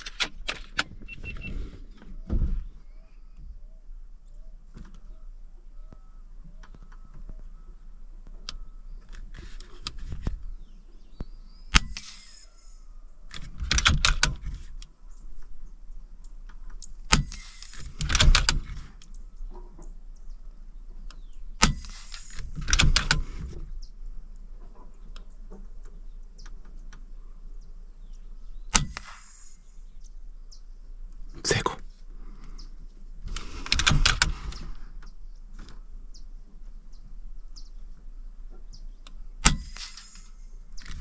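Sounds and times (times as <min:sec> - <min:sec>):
rustling and brushing: 0:09.2 - 0:10.6
sharp cracks: 0:11.7 - 0:14.9, 0:16.7 - 0:19.1, 0:21.6 - 0:23.4, 0:28.7 - 0:29.9, 0:39.0 - 0:41.0.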